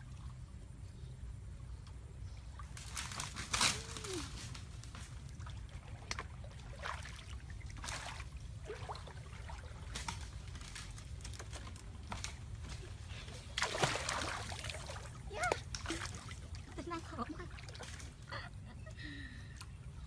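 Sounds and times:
water splashing and trickling: 0.0 - 0.8, 2.1 - 18.5
grass rustling: 2.6 - 5.5, 9.6 - 16.3.

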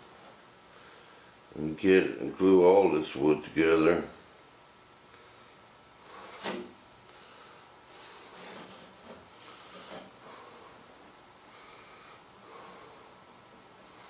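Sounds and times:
soft rubbing and rustling: 7.9 - 10.8.

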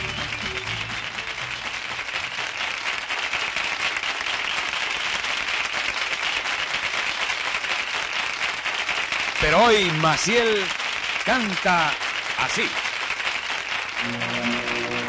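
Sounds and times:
audience applauding: 0.0 - 15.0
music final chord: 14.0 - 15.0.

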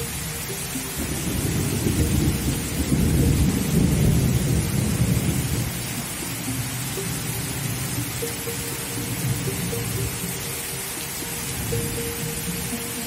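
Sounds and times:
heavy rain: 0.0 - 13.0
deep rumble of thunder: 1.1 - 6.1.

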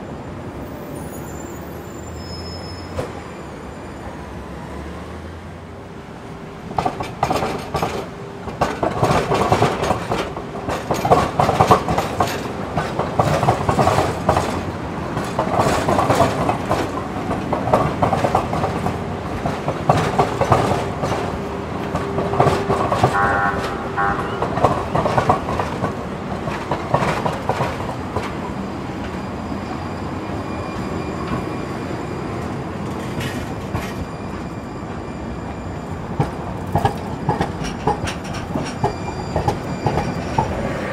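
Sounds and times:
train wheel squeal: 0.4 - 4.8, 17.6 - 40.9
train rolling rumble: 1.9 - 40.9
train wheels knocking over rail joints: 6.7 - 28.4, 36.2 - 40.7.

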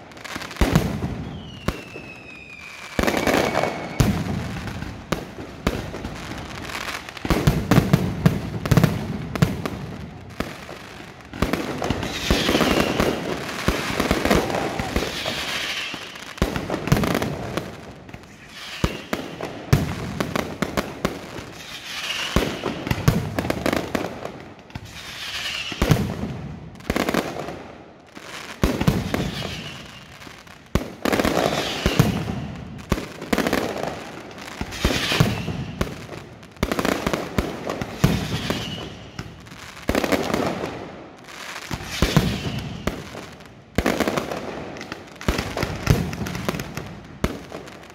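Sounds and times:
firework shells bursting: 34.6 - 35.8.

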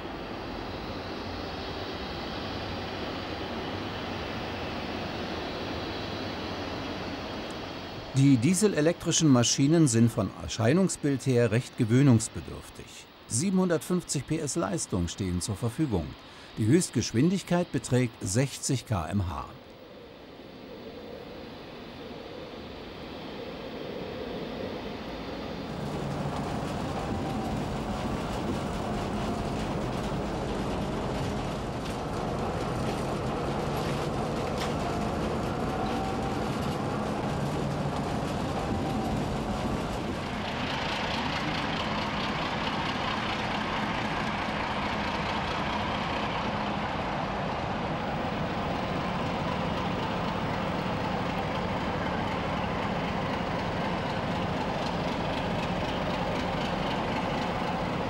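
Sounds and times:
faint wavering whine: 0.0 - 58.0
railway running hiss: 0.0 - 58.0
diesel locomotive engine running: 24.8 - 58.0.

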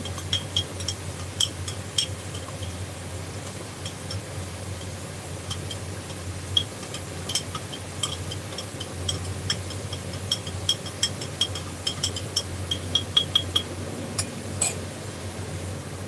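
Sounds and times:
metal spoon clinking in glass jar: 5.5 - 14.8.

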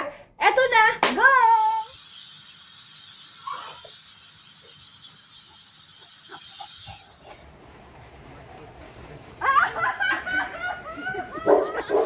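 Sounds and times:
high-pitched hiss: 1.4 - 7.8.

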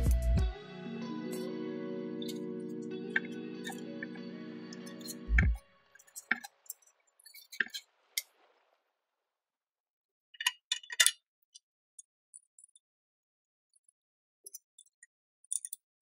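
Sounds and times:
metal parts clinking: 15.5 - 15.8.

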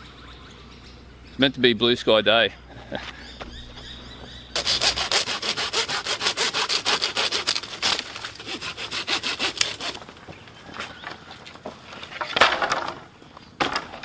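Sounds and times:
hand saw cutting branch: 4.6 - 10.0.

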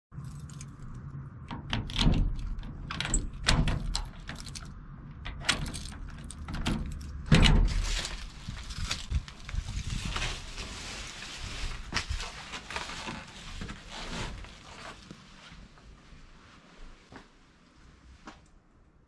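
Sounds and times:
key and handle clicks and rattles: 0.2 - 8.3
metal door clunk: 1.5 - 8.1.

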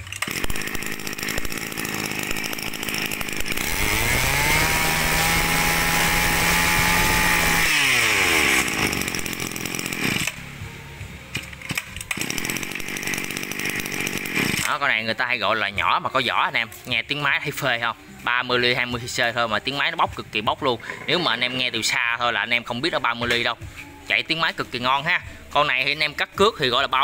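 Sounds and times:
brush cutter engine revving: 0.0 - 10.6, 11.7 - 15.6.

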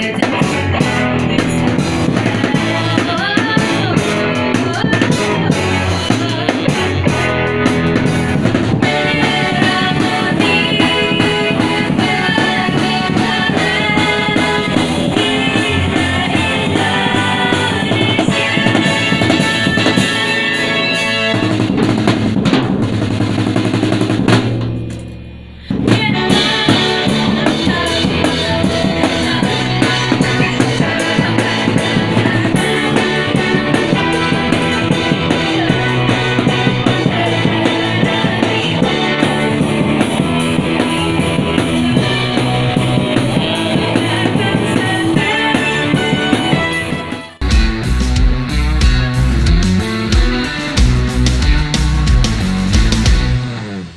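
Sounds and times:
person singing: 0.0 - 8.1, 8.7 - 21.6, 25.6 - 52.0
second band with vocals: 0.0 - 24.0, 25.4 - 53.9
rock band playing: 0.0 - 53.9.

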